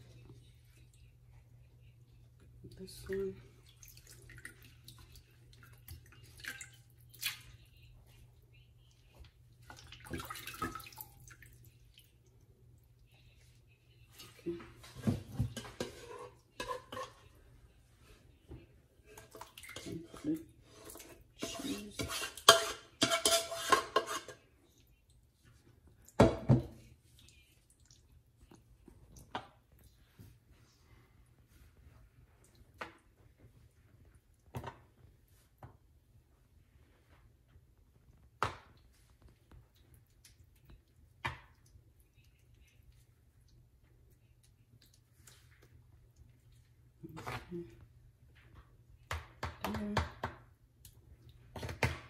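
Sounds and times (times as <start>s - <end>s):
metal spoon scraping a pot: 15.6s - 17.3s, 19.8s - 24.5s.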